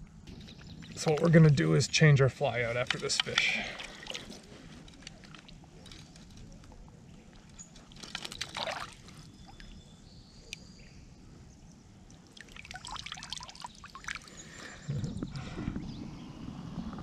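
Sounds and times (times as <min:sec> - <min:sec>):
water splashing and dribbling: 0:02.8 - 0:06.4, 0:07.3 - 0:09.7, 0:12.1 - 0:14.6.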